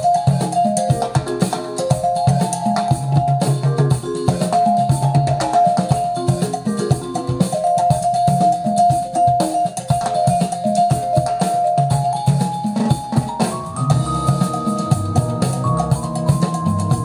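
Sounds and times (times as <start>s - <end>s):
music with drum beat over loudspeakers: 0.0s - 17.0s.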